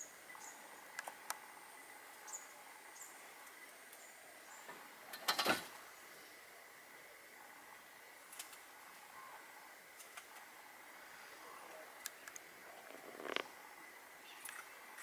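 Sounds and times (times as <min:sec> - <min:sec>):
crackling rustle: 0:08.2 - 0:15.0
faint steady high tone: 0:08.9 - 0:09.6
sharp clicks: 0:12.0 - 0:13.5.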